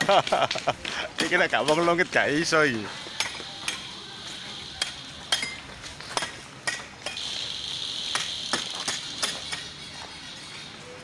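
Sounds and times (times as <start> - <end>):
high steady hiss: 0.1 - 9.8
hand tool tapping metal: 1.2 - 2.1, 4.7 - 7.3, 8.0 - 9.7.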